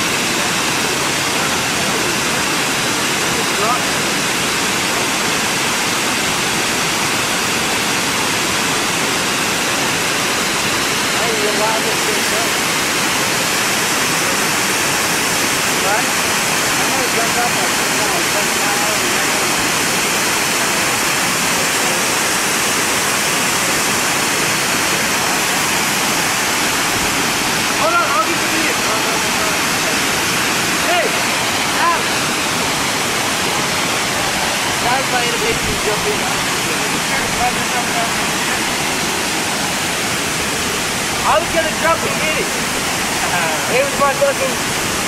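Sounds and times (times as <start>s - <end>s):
waterfall rushing: 0.0s - 45.0s.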